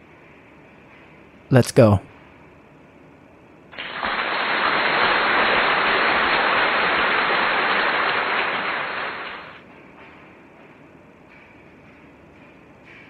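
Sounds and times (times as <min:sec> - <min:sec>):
steady rushing hiss: 0:03.7 - 0:09.6.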